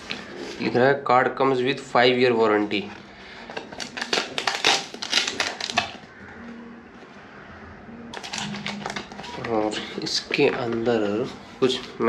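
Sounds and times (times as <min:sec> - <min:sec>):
packaging crackling and rustling: 0:02.7 - 0:06.2, 0:08.1 - 0:12.0.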